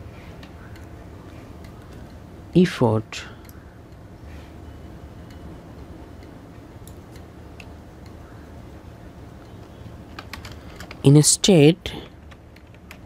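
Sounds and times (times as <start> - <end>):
low steady hum: 0.0 - 13.0
keyboard and mouse clicks: 9.4 - 11.0, 12.0 - 13.0.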